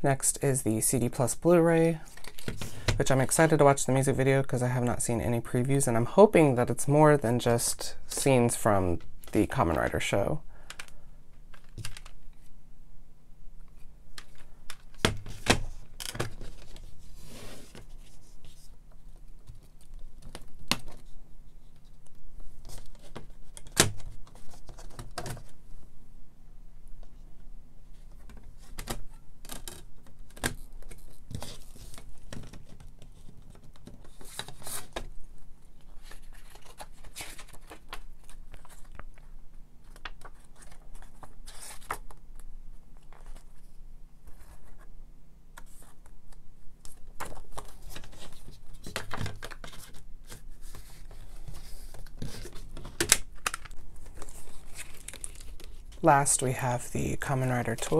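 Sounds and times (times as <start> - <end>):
paper rustling: 35.7 - 42.2, 46.8 - 56.1.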